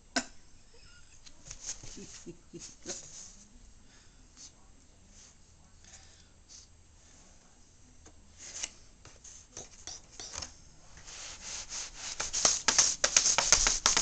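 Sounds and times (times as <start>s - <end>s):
cat claws scratching plastic basket: 11.6s - 14.0s.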